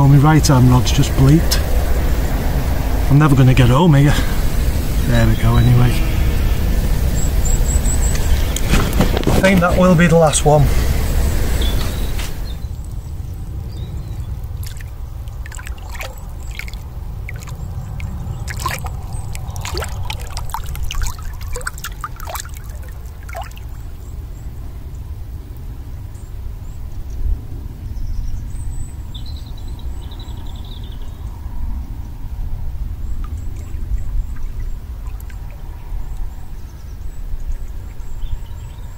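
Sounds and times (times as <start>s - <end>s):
low rumble: 0.0s - 8.9s
water splashing and trickling: 0.0s - 24.7s, 33.1s - 36.7s.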